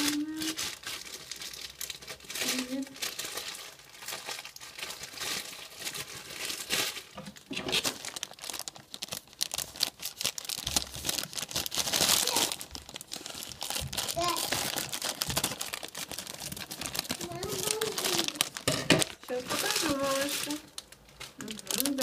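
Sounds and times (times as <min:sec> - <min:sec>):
plastic bag tearing: 0:00.0 - 0:22.0
plastic crinkling and rustling: 0:00.0 - 0:22.0.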